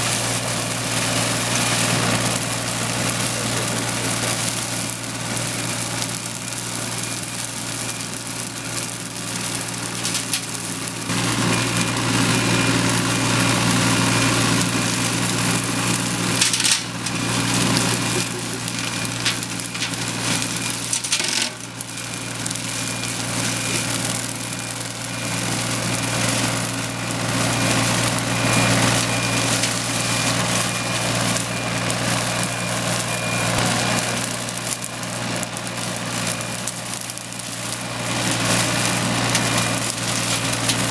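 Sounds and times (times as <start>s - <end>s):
excavator engine running: 0.0s - 40.9s
flail mower head spinning: 0.0s - 40.9s
sharp cracks: 0.2s - 13.8s, 14.5s - 27.2s.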